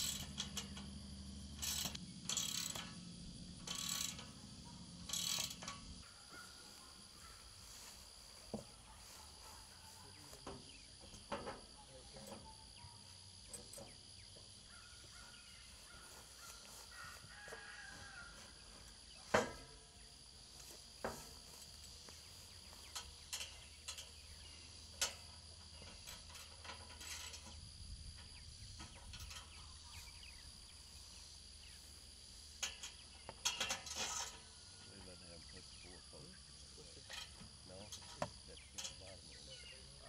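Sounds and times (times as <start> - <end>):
metal knocks and clanks: 0.0 - 6.5, 10.4 - 12.6, 22.6 - 29.9
high insect sound: 0.0 - 40.0.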